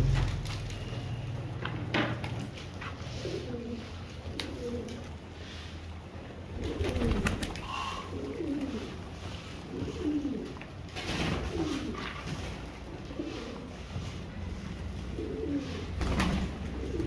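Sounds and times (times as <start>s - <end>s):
pigeons cooing: 2.9s - 17.0s
wings flapping: 6.6s - 8.8s, 15.6s - 17.0s.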